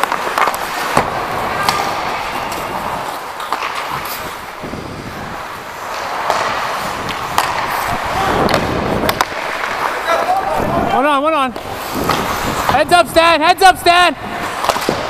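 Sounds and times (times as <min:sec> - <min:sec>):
skates scraping ice: 0:00.0 - 0:15.0
wind on microphone: 0:03.9 - 0:05.8, 0:06.8 - 0:09.2, 0:10.4 - 0:11.0, 0:11.7 - 0:13.2.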